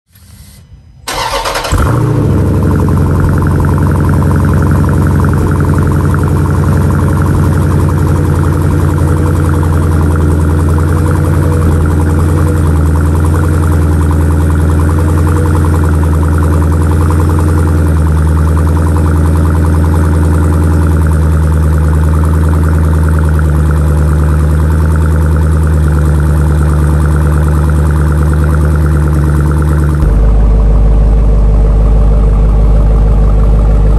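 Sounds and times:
car engine starting and idling: 0:00.0 - 0:33.9
engine revving: 0:01.1 - 0:33.9.

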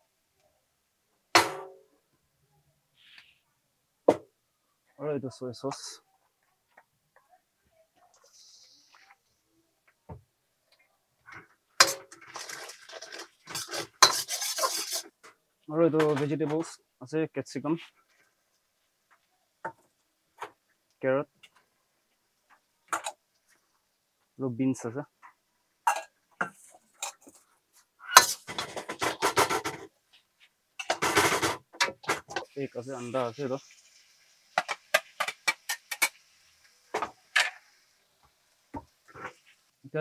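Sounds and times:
ladle scraping wok: 0:11.8 - 0:15.2, 0:34.6 - 0:36.2.

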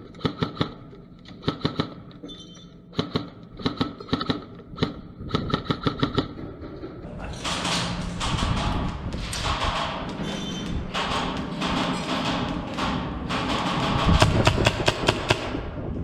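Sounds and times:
airsoft guns firing: 0:01.4 - 0:02.0, 0:10.9 - 0:15.6.

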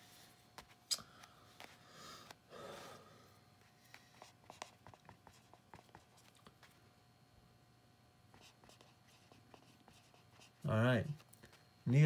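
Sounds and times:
soft breath: 0:01.0 - 0:04.2
marker scratching on paper: 0:03.6 - 0:06.4, 0:08.3 - 0:11.3.

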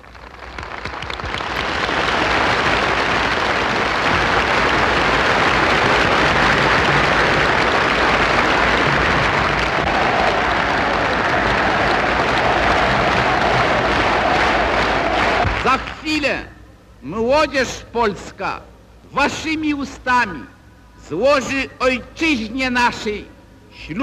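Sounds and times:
large crowd applauding: 0:00.0 - 0:16.2.

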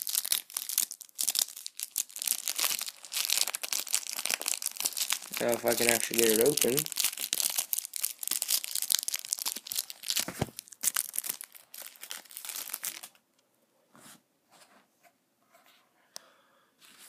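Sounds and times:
foil pack torn and crinkled: 0:00.0 - 0:13.2.

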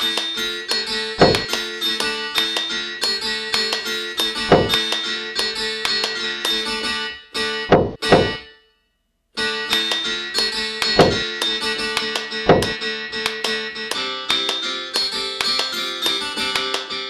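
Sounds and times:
plucked acoustic guitar music: 0:00.0 - 0:08.6, 0:09.4 - 0:17.0
heavy thumps: 0:01.2 - 0:01.5, 0:04.5 - 0:04.9, 0:07.7 - 0:08.4, 0:10.8 - 0:11.3, 0:12.5 - 0:12.8.

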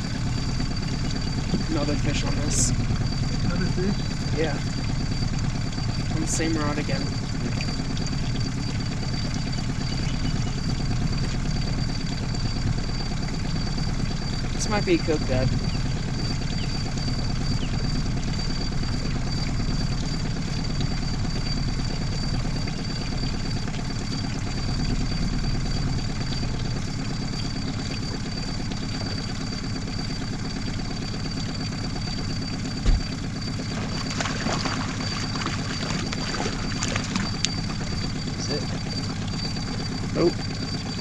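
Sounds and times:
outboard motor running: 0:00.0 - 0:41.0
sharp thump: 0:32.8 - 0:33.1.

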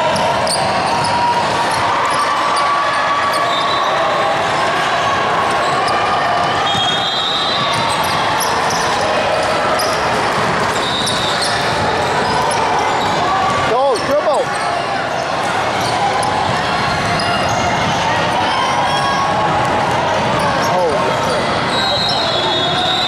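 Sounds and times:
echoing crowd voices: 0:00.0 - 0:23.0
basketball bouncing on court: 0:05.5 - 0:12.6.

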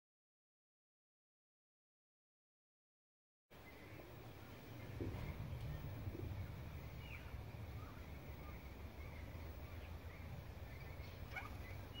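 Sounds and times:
faint bird calls: 0:03.5 - 0:12.0
low rumble: 0:03.7 - 0:12.0.

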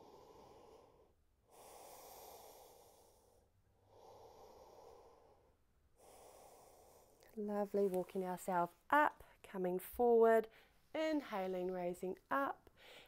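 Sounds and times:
woman breathing slowly: 0:00.0 - 0:07.4, 0:12.7 - 0:13.0.

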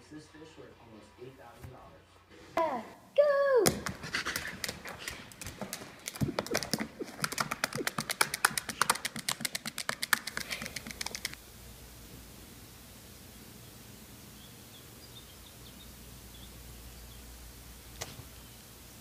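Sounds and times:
dog panting: 0:00.0 - 0:02.6, 0:03.8 - 0:11.4.

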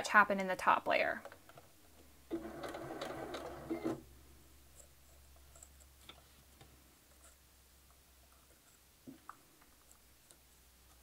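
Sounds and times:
sewing machine stitching: 0:02.3 - 0:04.0.

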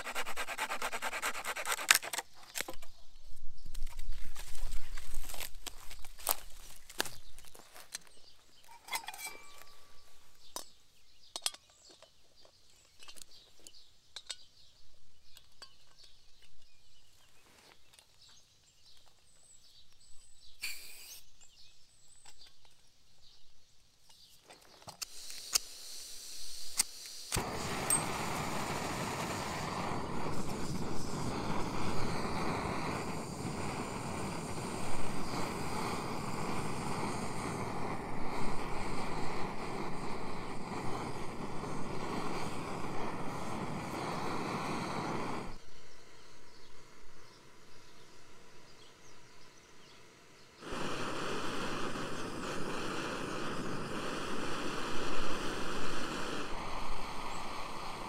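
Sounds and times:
faint bird chirps: 0:07.0 - 0:25.0, 0:39.2 - 0:50.6
steady rushing noise: 0:27.4 - 0:45.6.

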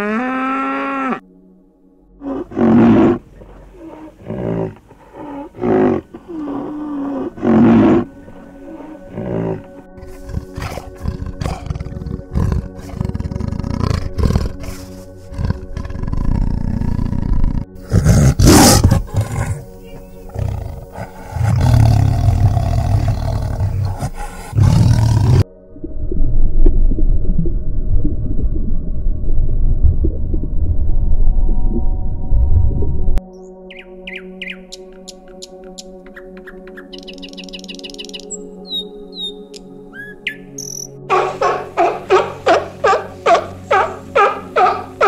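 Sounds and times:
big cat roaring and growling: 0:02.2 - 0:08.1, 0:08.8 - 0:25.4.

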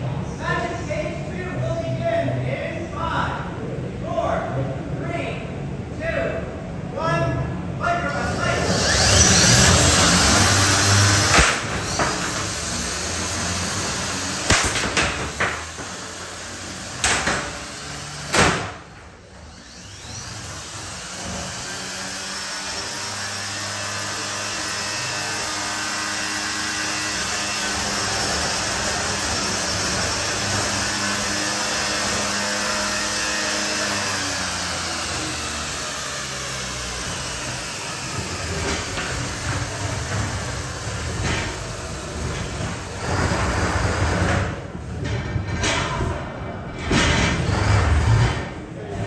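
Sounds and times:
electric motor whir: 0:08.6 - 0:18.4, 0:19.4 - 0:40.3
sharp metal impacts: 0:11.1 - 0:13.0, 0:14.2 - 0:16.1.

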